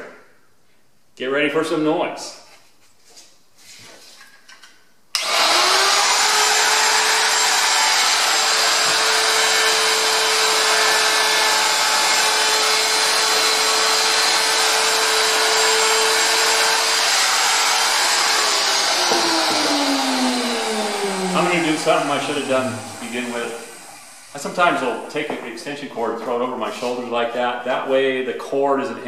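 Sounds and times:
wood router whining: 5.2s - 25.5s.

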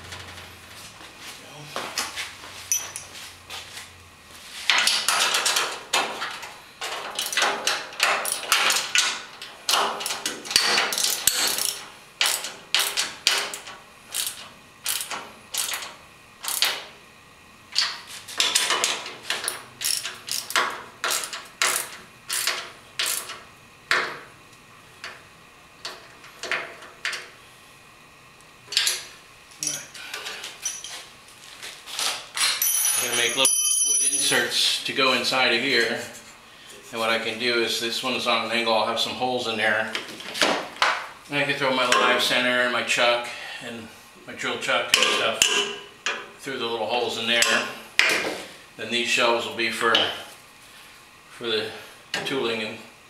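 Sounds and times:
ratchet wrench clicking: 14.1s - 15.8s, 19.5s - 23.4s.

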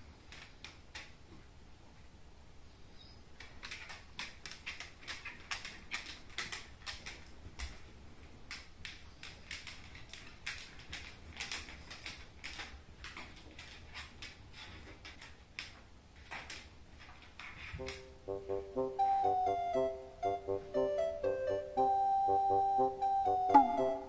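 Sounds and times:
dog claws clicking on wooden floor: 0.0s - 1.5s, 3.4s - 18.1s.

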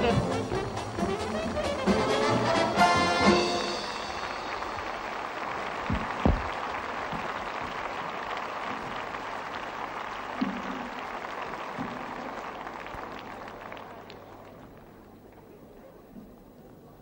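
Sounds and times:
audience applauding: 0.0s - 15.7s
dull thumps: 5.8s - 7.4s.

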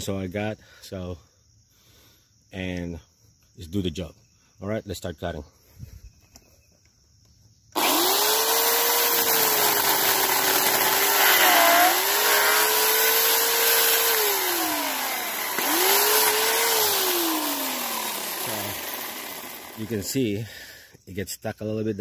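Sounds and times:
electric chainsaw cutting branch: 7.8s - 20.1s.

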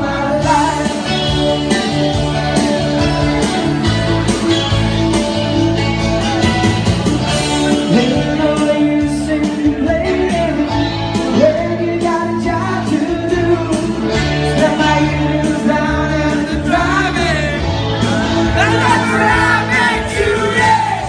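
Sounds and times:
man singing into a microphone: 0.0s - 1.4s, 7.8s - 17.7s, 18.5s - 21.0s
amplified rock guitar: 0.0s - 21.0s.

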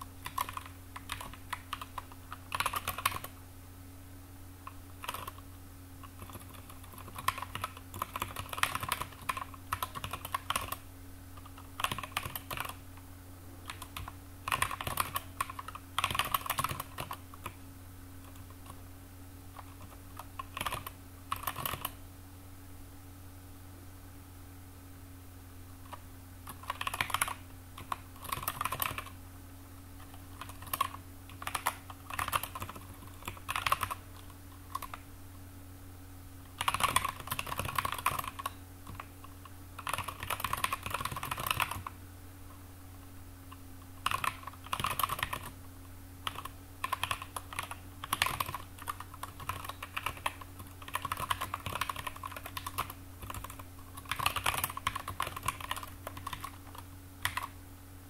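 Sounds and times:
steady low hum: 0.0s - 58.0s
typing on computer keyboard: 0.2s - 3.3s, 5.0s - 5.4s, 6.0s - 10.8s, 11.4s - 12.8s, 13.6s - 17.6s, 19.6s - 22.0s, 25.9s - 29.2s, 30.0s - 35.0s, 36.5s - 42.0s, 44.0s - 45.6s, 46.2s - 57.6s.

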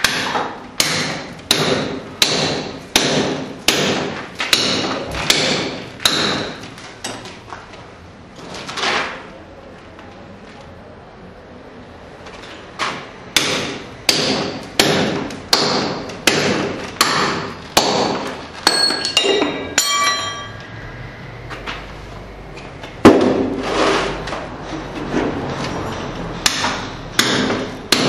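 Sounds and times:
hammer striking chisel on stone: 0.0s - 7.2s, 13.4s - 20.5s, 26.4s - 28.0s
metallic ringing: 18.6s - 22.8s.

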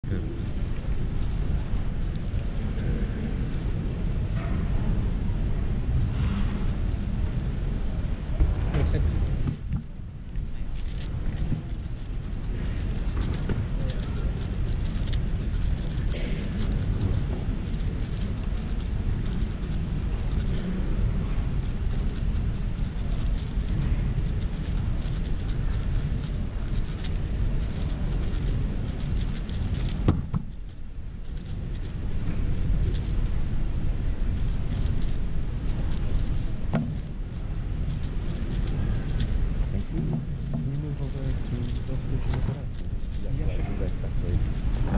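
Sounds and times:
exhibition hall rumble: 0.0s - 44.9s
puzzle cube clicking: 10.7s - 20.7s, 21.6s - 32.0s.

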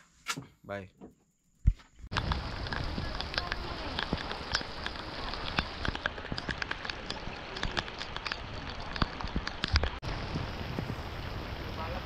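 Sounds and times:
heavy rain falling: 2.1s - 12.0s.

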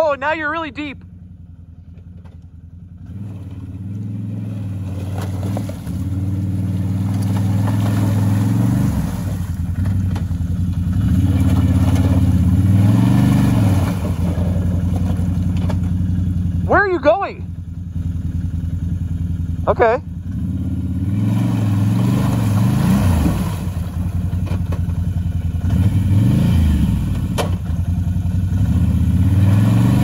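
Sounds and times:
atv engine revving: 0.0s - 30.0s
water churning: 4.7s - 9.8s.

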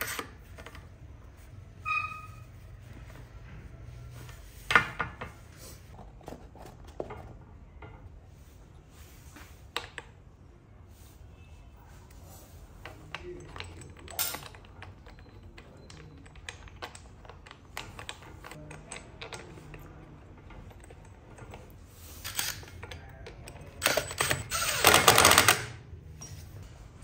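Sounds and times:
metal parts clicking and tapping: 12.8s - 26.3s
cordless driver whirring: 23.8s - 25.7s.

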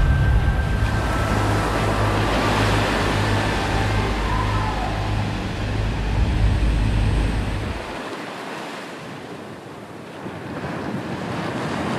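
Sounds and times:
wind buffeting microphone: 0.0s - 8.2s
surf breaking on reef: 0.0s - 11.9s.

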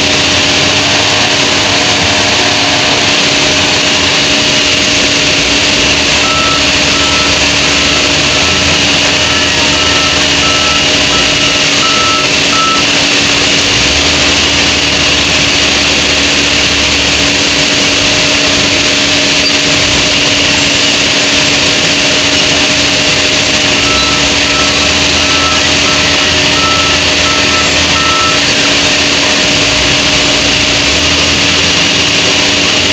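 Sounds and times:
diesel engine running: 0.0s - 32.9s
reversing alarm beeps: 0.5s - 13.3s, 23.3s - 30.4s.

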